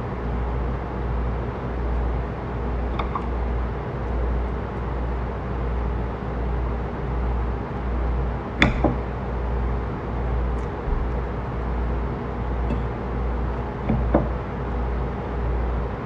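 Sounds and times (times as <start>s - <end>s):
faint hum: 0.0s - 16.0s
steady low rumble: 7.0s - 15.2s.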